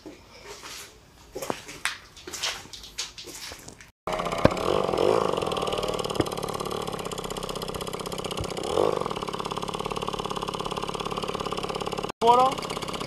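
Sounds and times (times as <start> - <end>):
moped engine putter: 4.1 - 13.0.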